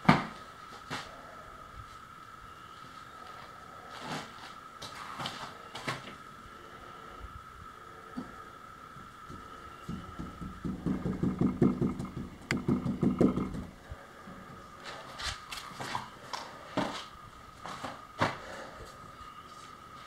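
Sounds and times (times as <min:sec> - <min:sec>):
sharp knocks: 0:09.3 - 0:13.7.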